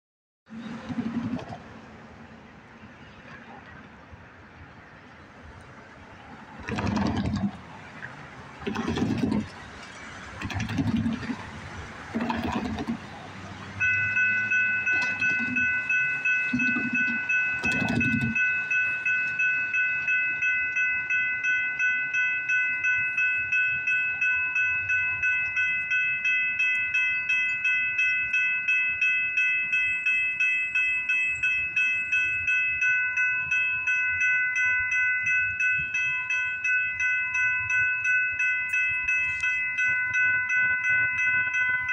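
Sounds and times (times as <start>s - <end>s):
railroad crossing bell ringing: 11.2s - 41.9s.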